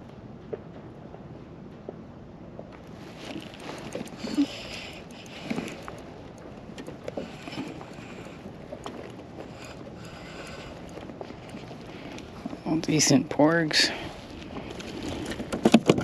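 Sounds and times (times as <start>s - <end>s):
waves lapping against kayak hull: 2.9s - 12.7s, 13.7s - 16.0s.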